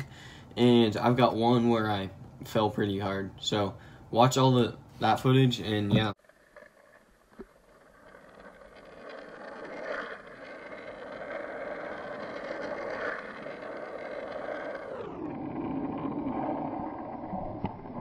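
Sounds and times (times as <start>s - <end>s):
skateboard wheels rolling on asphalt: 5.4s - 18.0s.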